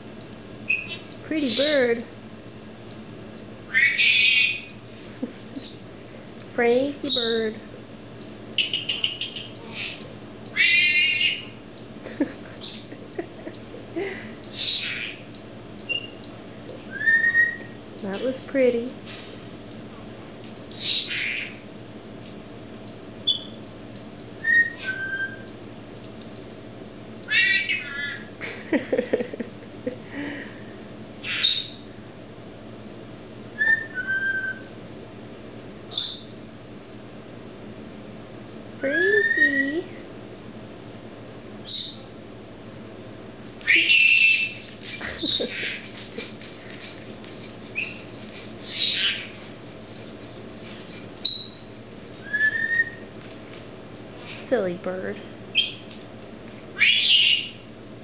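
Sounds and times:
parrot calling: 0:00.7 - 0:01.9, 0:03.7 - 0:04.8, 0:08.6 - 0:11.6, 0:12.6 - 0:13.0, 0:14.5 - 0:15.3, 0:16.9 - 0:17.8, 0:20.7 - 0:21.6, 0:24.4 - 0:25.5, 0:27.3 - 0:28.4, 0:31.2 - 0:31.9, 0:33.6 - 0:34.6, 0:35.9 - 0:36.4, 0:41.6 - 0:42.1, 0:43.6 - 0:46.8, 0:47.7 - 0:50.1, 0:51.2 - 0:53.0, 0:56.8 - 0:57.6
harsh squawk: 0:03.7 - 0:04.7, 0:08.8 - 0:11.5, 0:14.5 - 0:15.3, 0:20.8 - 0:21.6, 0:27.3 - 0:28.3, 0:31.2 - 0:31.7, 0:43.6 - 0:44.6, 0:48.6 - 0:49.4
parrot whistles: 0:16.9 - 0:17.8, 0:24.4 - 0:25.5, 0:33.6 - 0:34.7, 0:43.6 - 0:44.6, 0:52.2 - 0:53.0, 0:56.8 - 0:57.6.

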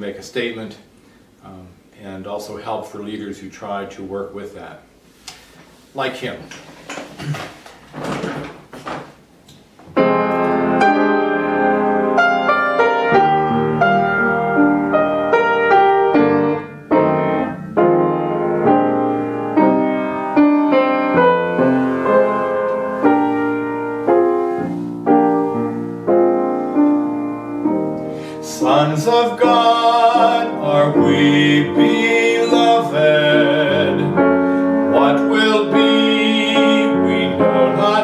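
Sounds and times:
upright piano playing gospel: 0:09.9 - 0:38.0.

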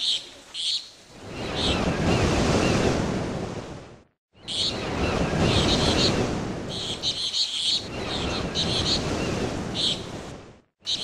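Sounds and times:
surf washing in: 0:01.0 - 0:10.6
birds chirping: 0:04.4 - 0:10.2.

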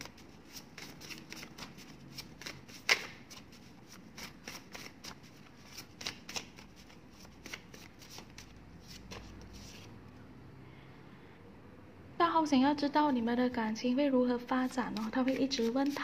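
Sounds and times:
paper cards shuffled by hand: 0:00.0 - 0:09.9, 0:14.7 - 0:16.0.

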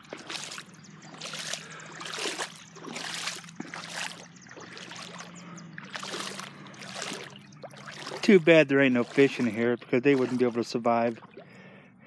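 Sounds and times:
legs wading through water: 0:00.0 - 0:12.0.

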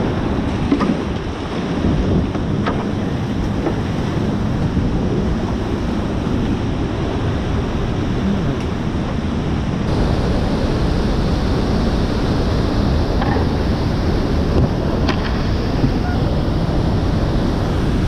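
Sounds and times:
river rapids rushing: 0:03.0 - 0:18.0
waterfall rushing: 0:09.7 - 0:18.0.

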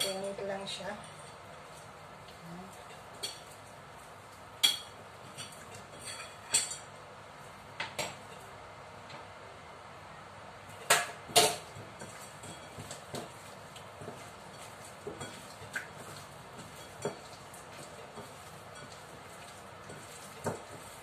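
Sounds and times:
clicks and knocks against a bowl: 0:10.8 - 0:21.0.

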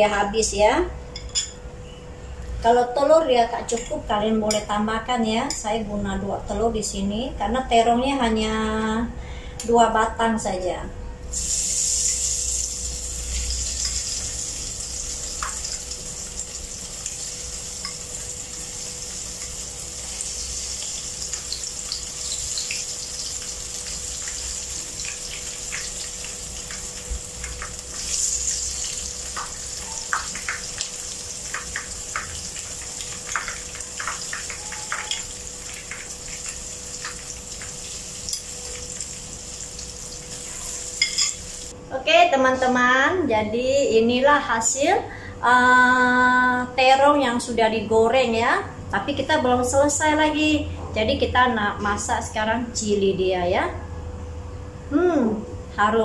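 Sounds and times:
food frying in hot oil: 0:11.3 - 0:41.7.

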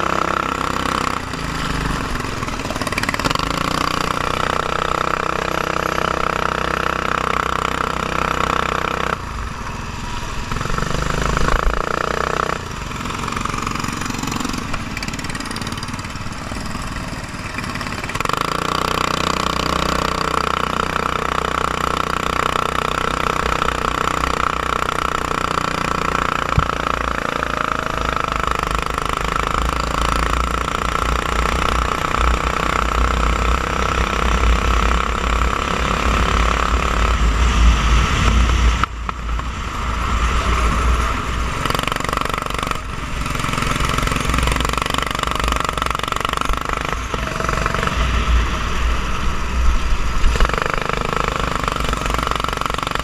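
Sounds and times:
racing kart engine running hard: 0:00.0 - 0:53.0
heavy low rumble: 0:47.0 - 0:50.5.

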